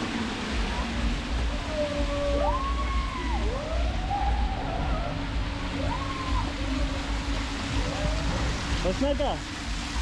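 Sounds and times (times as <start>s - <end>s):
low steady hum: 0.0s - 10.0s
water rushing: 0.0s - 10.0s
people screaming: 1.6s - 6.9s.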